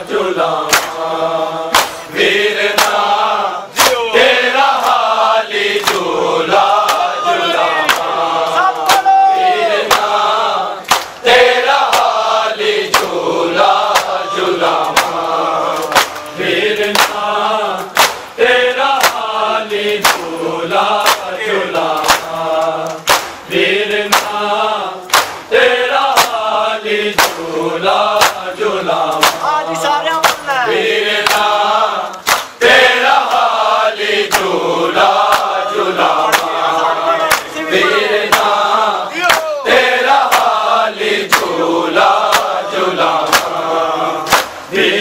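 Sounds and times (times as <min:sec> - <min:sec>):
men chanting a lament: 0:00.0 - 0:45.0
chest-beating slaps: 0:00.6 - 0:01.1, 0:01.7 - 0:02.1, 0:02.7 - 0:03.1, 0:03.8 - 0:04.1, 0:04.8 - 0:05.1, 0:05.7 - 0:06.1, 0:06.7 - 0:07.1, 0:08.8 - 0:09.1, 0:09.8 - 0:10.2, 0:10.8 - 0:11.2, 0:11.8 - 0:12.2, 0:12.9 - 0:13.2, 0:13.8 - 0:18.4, 0:19.0 - 0:20.4, 0:21.0 - 0:23.5, 0:24.1 - 0:24.4, 0:25.1 - 0:25.5, 0:26.1 - 0:26.4, 0:27.2 - 0:27.5, 0:28.1 - 0:28.5, 0:29.1 - 0:29.5, 0:30.2 - 0:30.6, 0:31.2 - 0:31.5, 0:32.1 - 0:32.6, 0:34.3 - 0:34.6, 0:35.2 - 0:37.6, 0:38.2 - 0:38.6, 0:39.2 - 0:39.5, 0:40.1 - 0:40.7, 0:41.3 - 0:41.6, 0:42.2 - 0:43.6, 0:44.2 - 0:44.7.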